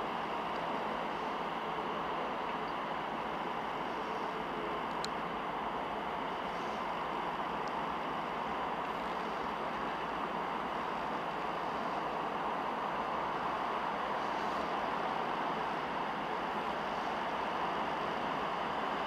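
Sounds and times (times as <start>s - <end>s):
tractor engine running under load: 0.0s - 19.0s.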